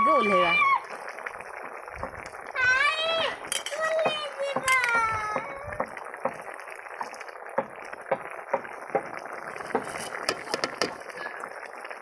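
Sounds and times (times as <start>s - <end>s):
curry bubbling and popping: 0.0s - 12.0s
metal ladle knocking on pan: 3.5s - 6.4s, 9.7s - 11.0s.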